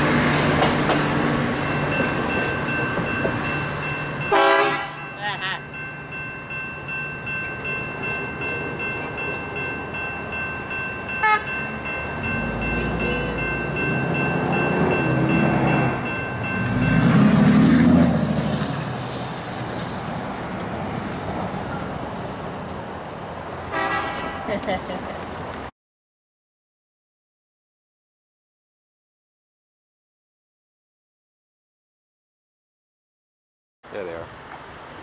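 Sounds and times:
distant locomotive horn: 4.2 - 5.2, 11.2 - 18.2, 23.7 - 24.5.

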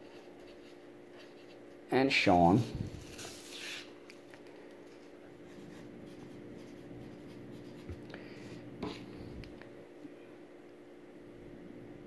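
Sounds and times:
marker scratching on paper: 3.0 - 3.9.

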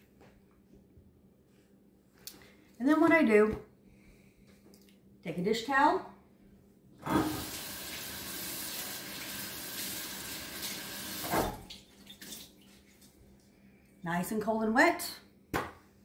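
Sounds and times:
faucet running: 7.0 - 12.5.

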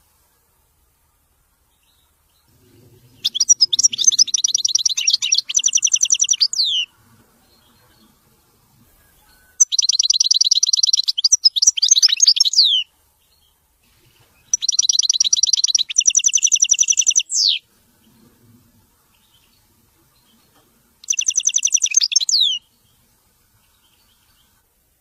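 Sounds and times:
goldfinch singing: 3.0 - 8.2, 8.9 - 18.2, 19.0 - 23.0.

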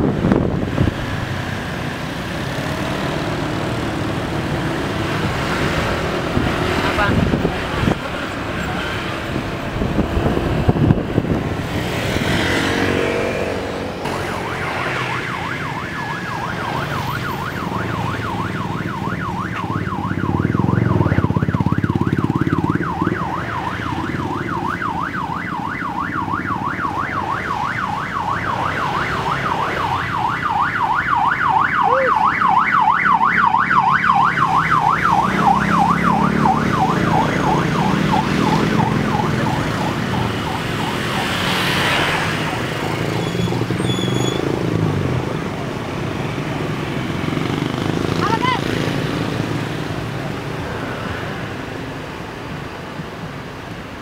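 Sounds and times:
cars and motorcycles passing: 0.0 - 54.0
vehicle siren yelping: 12.2 - 50.4.

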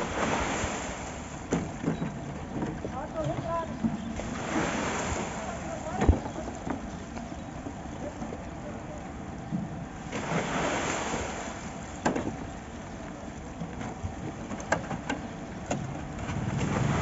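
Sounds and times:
wheelbarrow rushing scraping noise: 16.2 - 17.0.

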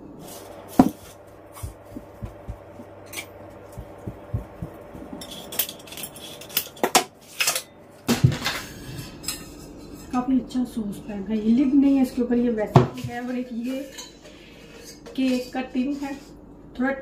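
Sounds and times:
faint steady hum: 0.0 - 12.7.

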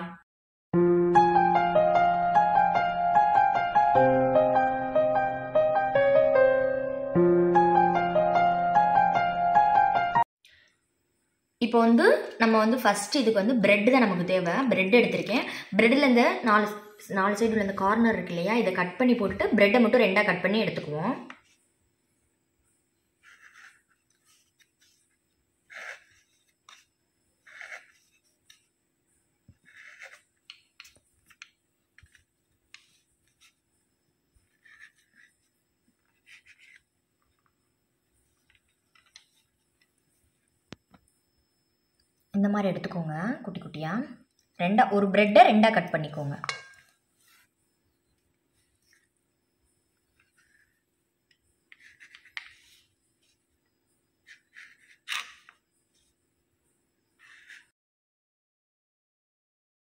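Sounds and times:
knife sawing through bread: 23.2 - 25.0, 25.7 - 28.2, 29.6 - 30.3
knife cutting bread on wooden board: 23.2 - 25.1, 25.7 - 28.6, 29.5 - 33.6, 34.4 - 36.9, 51.7 - 52.9.

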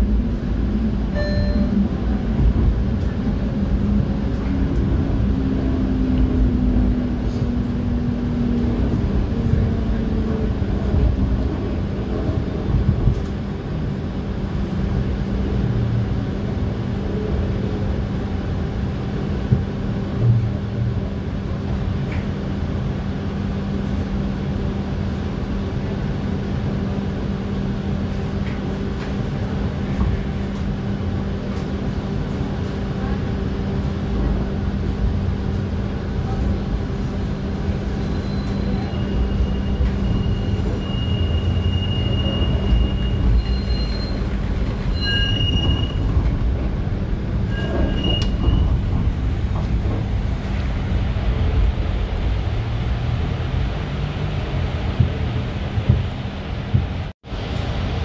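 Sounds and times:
streetcar humming and rumbling: 0.0 - 58.0
wheel squeal on rails: 37.9 - 46.3, 47.4 - 49.0.

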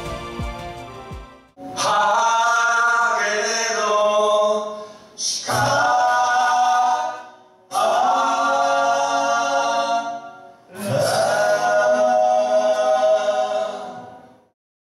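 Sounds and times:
men singing in harmony: 1.7 - 14.3.

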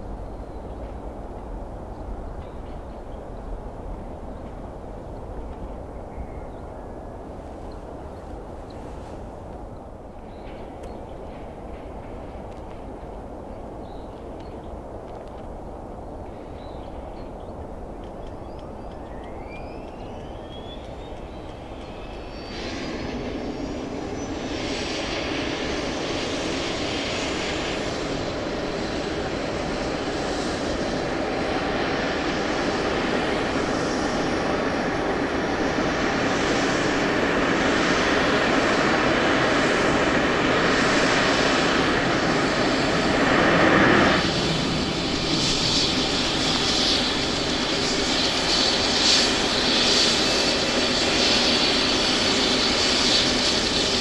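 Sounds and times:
turbine engine whine: 0.0 - 54.0
pulsing hiss: 21.0 - 54.0.

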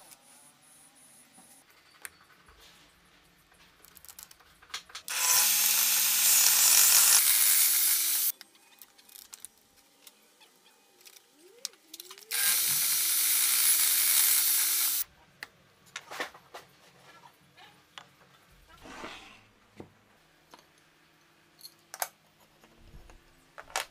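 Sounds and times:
table saw cutting wood: 5.1 - 8.3, 12.3 - 15.0.

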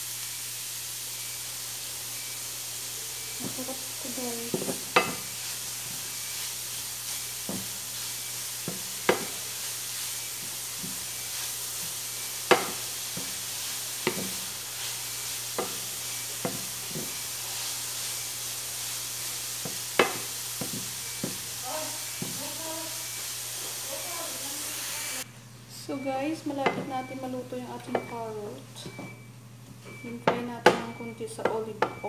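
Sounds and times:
carrot sizzling in oil: 0.0 - 25.3
wooden spatula knocking pan: 4.4 - 14.5, 15.2 - 17.3, 19.6 - 21.5, 22.1 - 22.5, 26.6 - 27.1, 29.9 - 32.0.

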